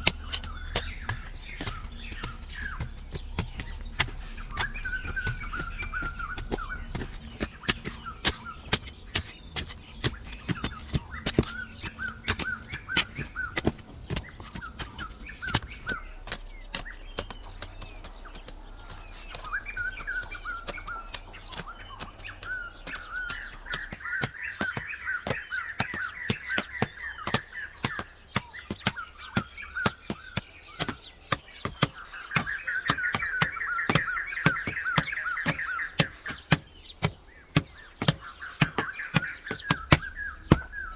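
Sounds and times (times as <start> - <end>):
birds chirping: 0.0 - 40.9
hoes striking stony soil: 0.0 - 40.9.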